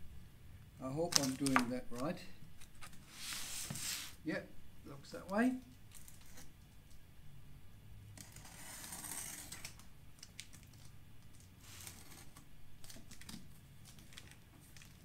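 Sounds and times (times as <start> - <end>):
knife slitting packing tape: 8.2 - 10.7, 11.6 - 13.3.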